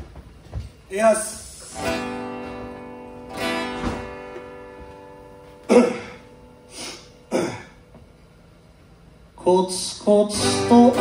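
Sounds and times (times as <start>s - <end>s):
acoustic guitar strummed chords: 1.7s - 8.0s, 10.2s - 11.0s.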